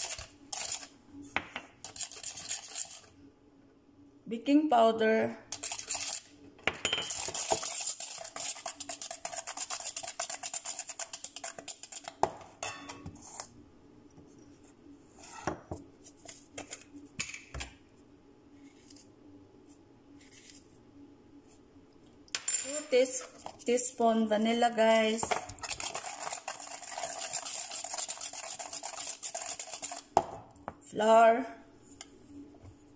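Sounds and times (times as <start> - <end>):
whisk clattering in metal bowl: 1.8 - 3.1, 6.9 - 12.1, 25.3 - 30.1.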